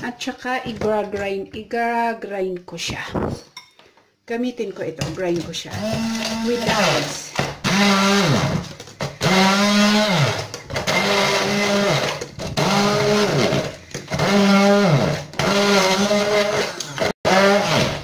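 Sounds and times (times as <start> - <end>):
hand blender crushing ice: 5.7 - 18.0.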